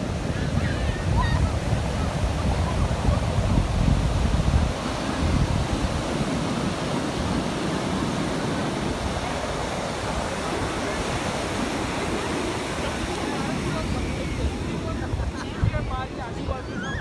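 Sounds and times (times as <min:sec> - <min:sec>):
wind buffeting microphone: 0:00.0 - 0:17.0
faint crowd chatter: 0:07.3 - 0:17.0.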